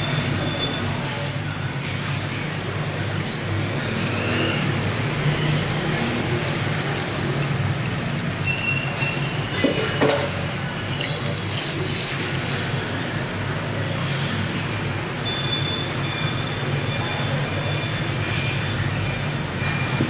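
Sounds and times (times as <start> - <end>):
water spraying on hair: 6.8 - 12.8.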